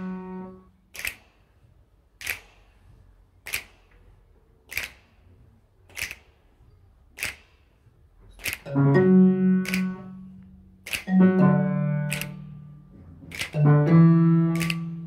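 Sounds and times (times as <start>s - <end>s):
sharp claps: 0.9s - 1.4s, 3.4s - 3.9s, 4.7s - 5.2s, 8.4s - 8.7s, 9.6s - 10.1s, 10.8s - 11.1s, 12.1s - 12.5s, 13.2s - 13.7s, 14.5s - 15.0s.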